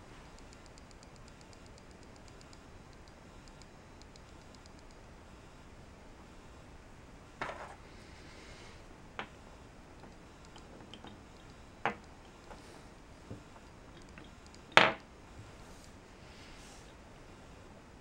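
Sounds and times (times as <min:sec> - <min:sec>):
wooden pieces clacking on table: 0:11.8 - 0:12.6.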